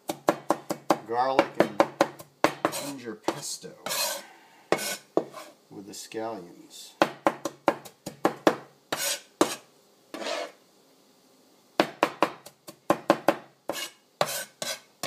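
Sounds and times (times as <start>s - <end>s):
cleaver chopping on cutting board: 0.1s - 5.4s, 7.0s - 9.6s, 11.8s - 14.8s.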